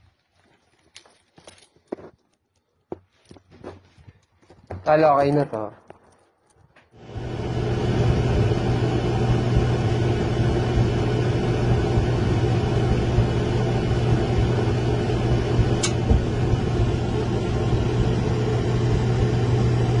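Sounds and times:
clothes dryer motor humming: 7.0s - 20.0s
gas burner igniting: 7.0s - 20.0s
sharp click: 15.8s - 16.0s.

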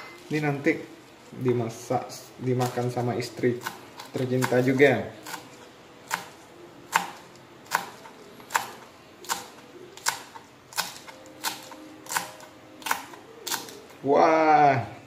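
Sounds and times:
knife chopping on cutting board: 3.5s - 13.8s.

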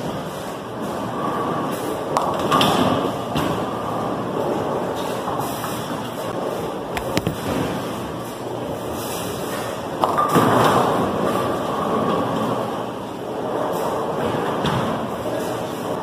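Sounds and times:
bowling balls rolling: 6.3s - 8.8s
sharp knocks: 7.0s - 7.7s.

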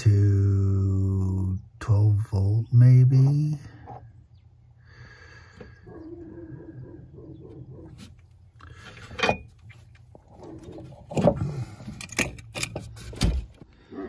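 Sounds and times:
clicks and rattles of handling: 8.6s - 13.7s.

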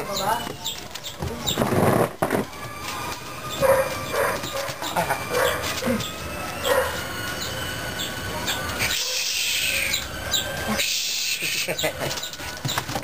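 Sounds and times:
puppy yipping: 3.5s - 6.0s, 6.6s - 7.1s.

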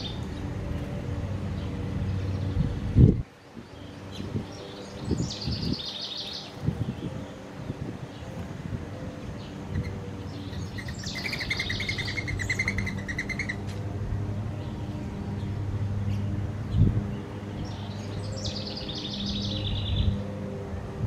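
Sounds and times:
songbird trilling: 9.7s - 13.7s.

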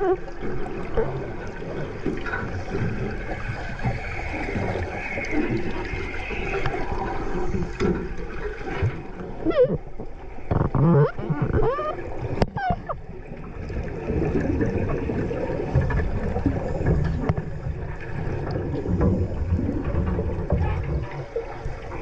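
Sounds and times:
underwater gurgling wash: 0.0s - 22.0s.

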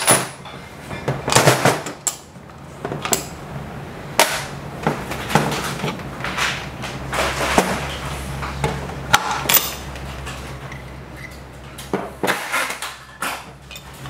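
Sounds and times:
small metal parts clinking: 9.3s - 11.3s, 12.6s - 14.0s.

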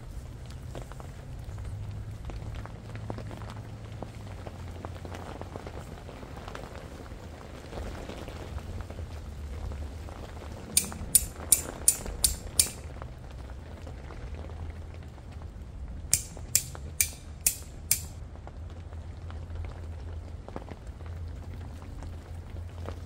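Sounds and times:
sharp clicks: 10.8s - 12.8s, 16.1s - 18.2s.

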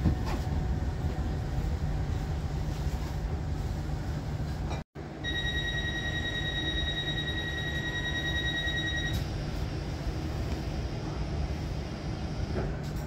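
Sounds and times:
train rumbling: 0.0s - 13.0s
steady high-pitched tone: 5.2s - 9.2s.

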